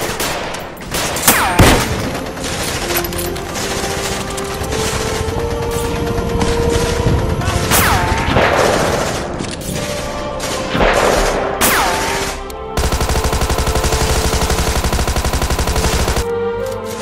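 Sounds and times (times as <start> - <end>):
gunfire: 0.0 - 4.0, 6.4 - 16.2
music: 0.0 - 17.0
machine-gun burst: 12.8 - 16.2.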